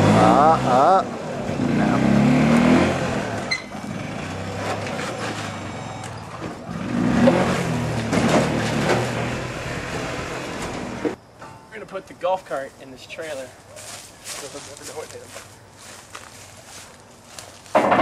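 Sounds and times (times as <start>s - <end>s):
golf cart engine revving: 0.0s - 11.2s.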